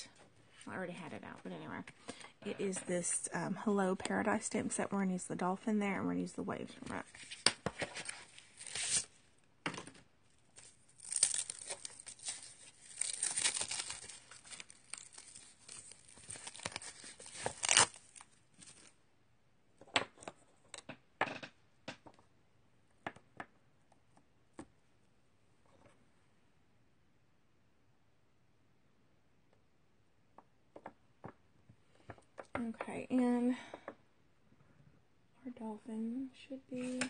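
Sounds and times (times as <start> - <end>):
plastic packaging crinkling: 7.1 - 9.2, 10.5 - 18.9.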